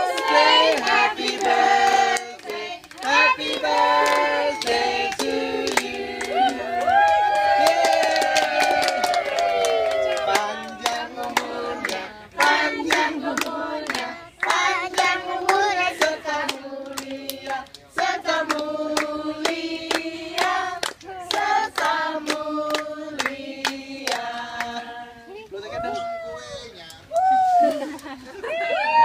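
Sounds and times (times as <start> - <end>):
group singing: 0.0 - 6.9, 10.1 - 25.3
people clapping in rhythm: 0.0 - 25.0.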